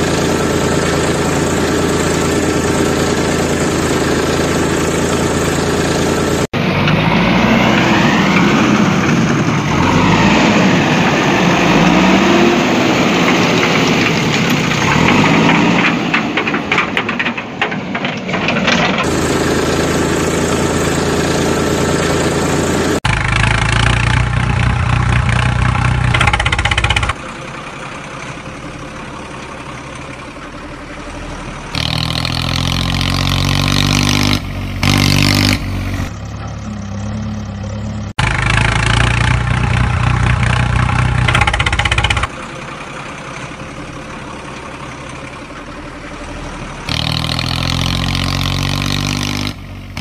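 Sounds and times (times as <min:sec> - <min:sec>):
engine idling and revving: 0:00.0 - 0:50.0.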